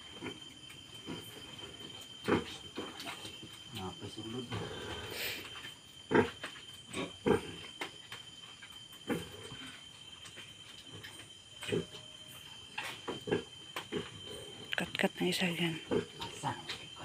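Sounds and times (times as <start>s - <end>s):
pig grunting: 4.4s - 5.4s, 6.1s - 7.7s.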